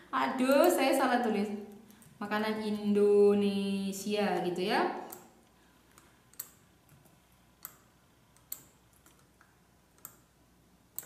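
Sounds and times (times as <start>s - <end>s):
computer mouse clicks: 5.0s - 10.3s.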